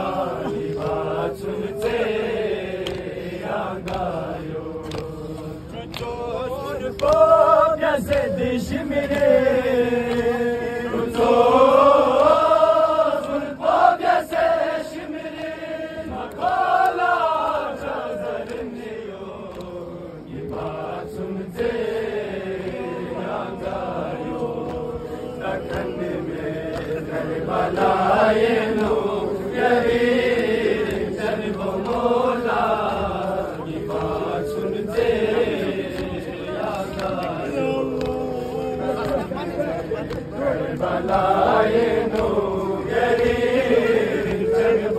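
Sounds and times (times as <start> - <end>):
men chanting a lament: 0.0 - 44.9.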